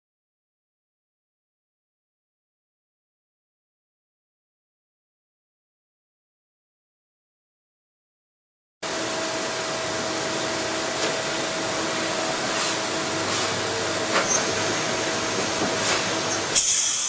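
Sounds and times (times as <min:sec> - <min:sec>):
lathe running hiss: 0:08.9 - 0:17.0.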